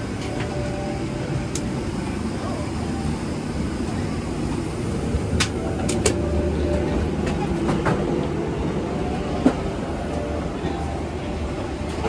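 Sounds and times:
aircraft cabin ventilation hum: 0.0s - 12.0s.

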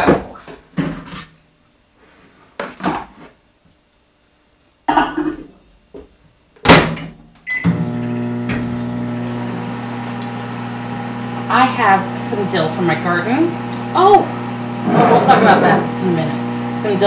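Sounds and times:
microwave oven humming: 6.6s - 17.0s.

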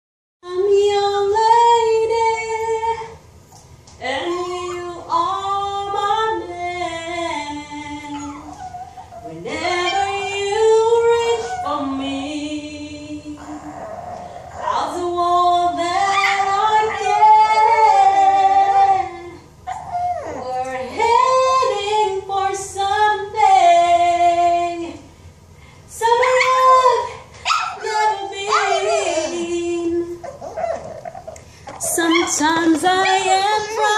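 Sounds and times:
woman singing a slow ballad: 0.4s - 3.2s, 3.9s - 19.5s, 20.2s - 25.1s, 25.9s - 30.6s, 31.8s - 33.9s
small dog howling: 8.0s - 12.4s, 16.0s - 18.8s, 19.7s - 20.7s, 27.5s - 29.6s, 30.2s - 33.9s.

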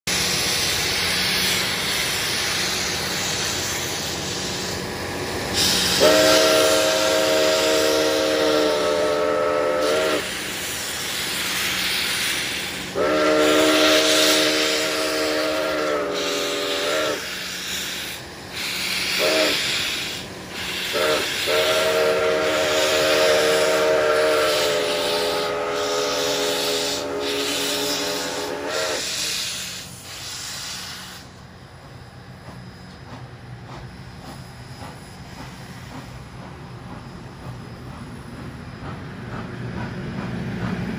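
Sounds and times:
hiss of escaping steam: 0.1s - 31.4s
steam whistle blasts: 5.6s - 10.6s, 12.1s - 31.3s.

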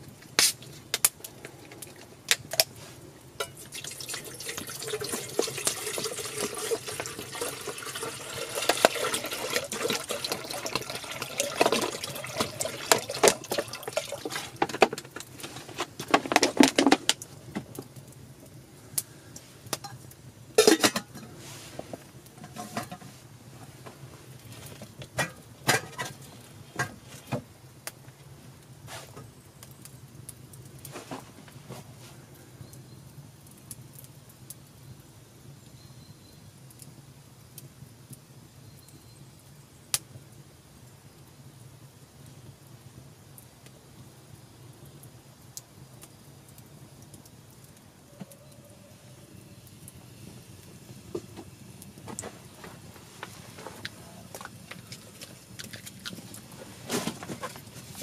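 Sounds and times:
campfire crackling and popping: 0.0s - 58.0s
water pouring into metal pot: 3.4s - 14.8s.

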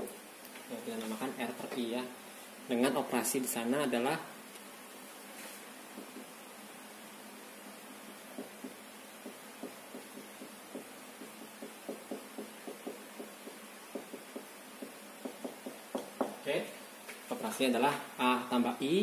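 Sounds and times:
faint steady hiss: 0.0s - 19.0s
marker tapping on whiteboard: 5.9s - 6.3s, 8.3s - 16.4s.

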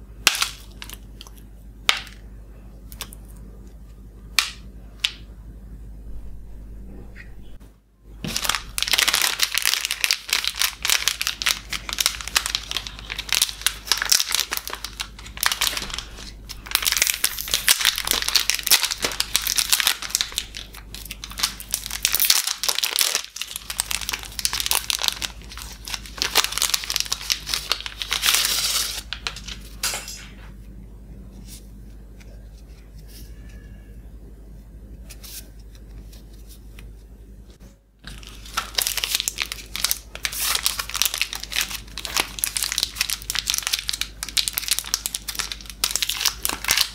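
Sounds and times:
plastic wrapper crinkling: 0.2s - 2.2s, 8.2s - 29.8s, 38.0s - 46.9s.

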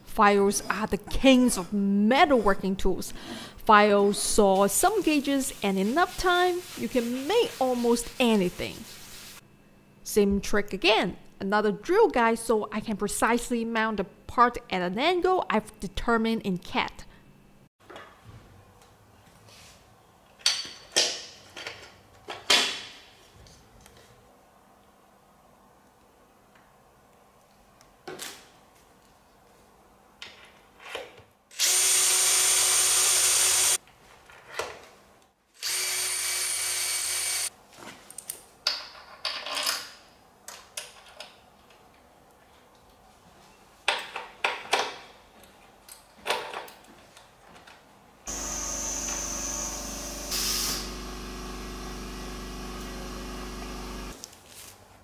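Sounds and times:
cordless drill running: 31.6s - 33.8s, 35.6s - 37.5s, 48.3s - 54.2s
tools and metal parts clicking: 38.2s - 41.4s.

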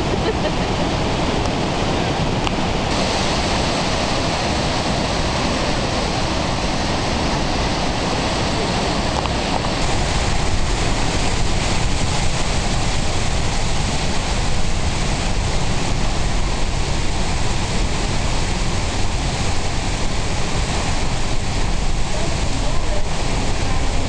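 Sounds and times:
waterfall roar: 0.0s - 24.0s.

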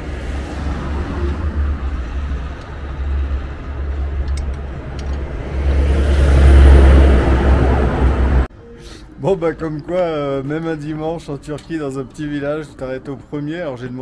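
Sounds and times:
engine rumble: 0.0s - 8.5s.

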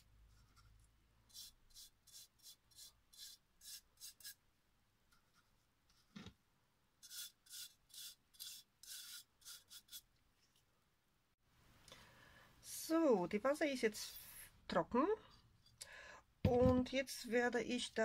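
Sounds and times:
brush scraping paste on glass: 0.3s - 4.4s, 7.0s - 10.1s.

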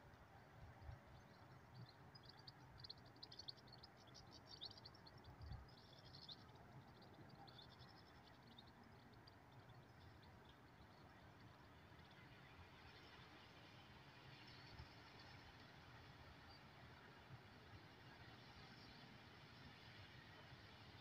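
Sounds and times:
small birds twittering: 0.9s - 20.4s.

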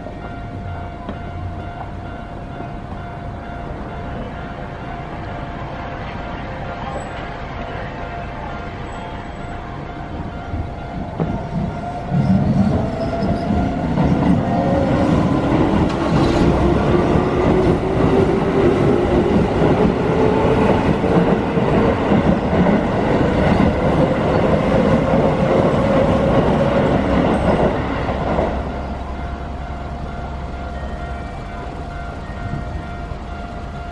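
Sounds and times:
level crossing warning bell: 0.0s - 33.9s
train wheels clattering on rails: 10.1s - 33.9s.

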